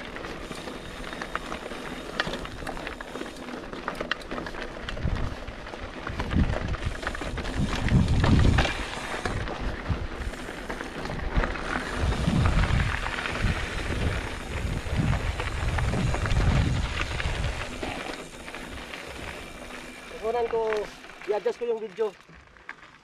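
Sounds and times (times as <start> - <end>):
bike clicks and rattles: 0.0 - 23.0
wind buffeting microphone: 4.8 - 19.8
steady noisy rush: 6.0 - 21.6.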